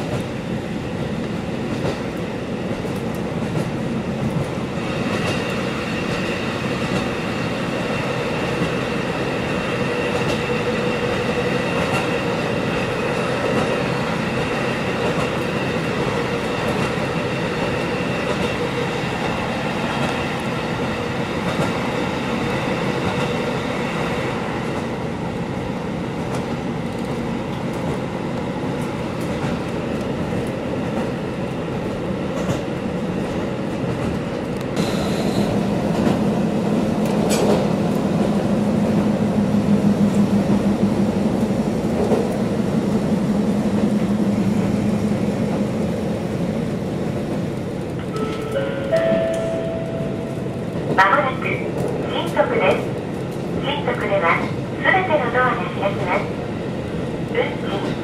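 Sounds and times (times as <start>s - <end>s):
railcar engine and wheels rumbling: 0.0s - 58.0s
rail-joint clicks: 10.1s - 10.5s, 11.2s - 12.1s, 37.0s - 38.3s, 47.4s - 51.0s.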